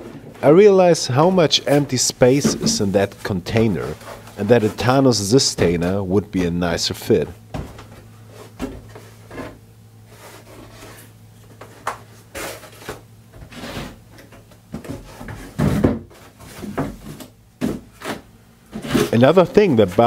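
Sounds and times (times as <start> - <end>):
foam scraping plastic case: 12.3 - 20.0.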